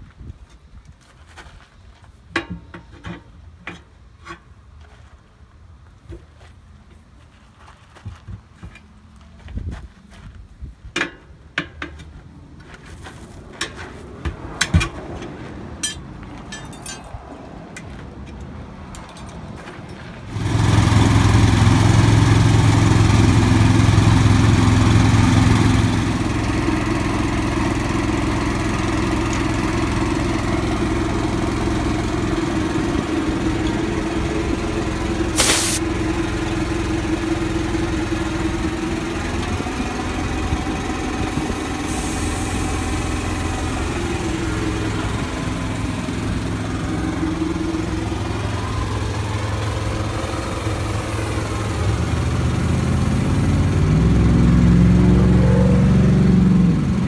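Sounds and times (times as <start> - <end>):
metal clinks of tire irons: 15.8 - 17.2
air compressor running: 20.3 - 46.1, 46.8 - 54.2
short hiss: 35.4 - 35.8.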